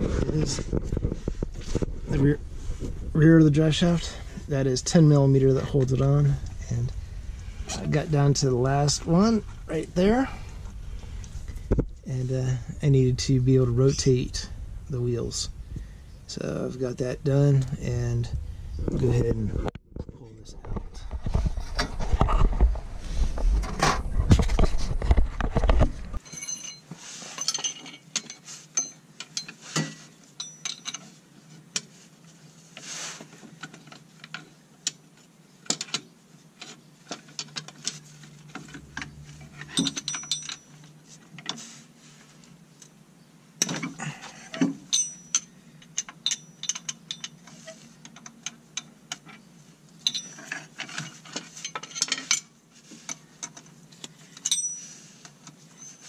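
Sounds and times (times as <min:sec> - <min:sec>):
metallic tool clicks on bolts: 0:44.9 - 0:47.4.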